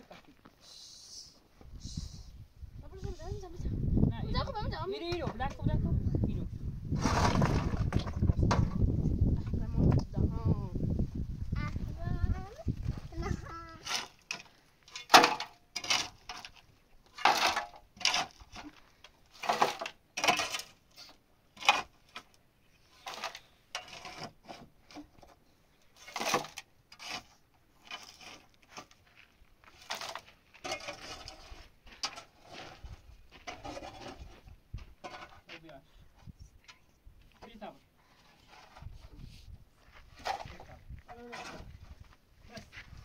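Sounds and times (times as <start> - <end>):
earth scraped up: 6.2 - 9.4, 12.6 - 36.4, 38.0 - 43.0
stones clattering into metal basin: 7.0 - 8.8, 13.9 - 20.8, 23.0 - 24.6, 26.0 - 27.3, 29.8 - 32.8.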